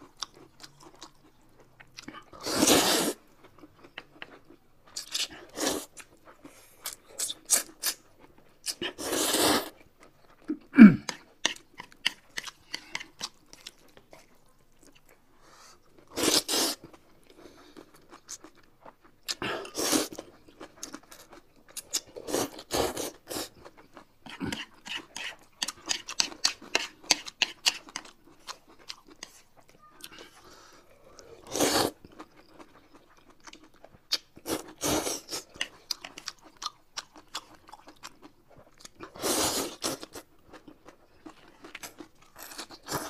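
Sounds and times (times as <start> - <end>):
wet chewing and smacking: 0.0 - 2.4, 3.2 - 9.0, 9.7 - 15.2, 16.8 - 43.0
noodles slurped: 8.9 - 9.8, 31.4 - 32.1.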